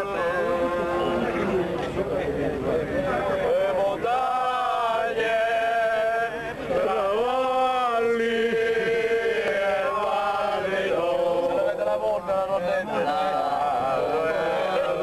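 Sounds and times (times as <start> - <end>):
men singing together: 3.4 - 15.0.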